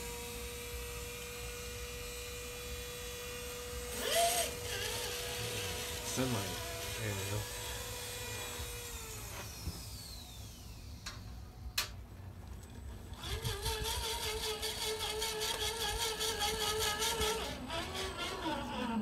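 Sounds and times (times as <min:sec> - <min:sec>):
small electric motor whining: 0:00.0 - 0:19.0.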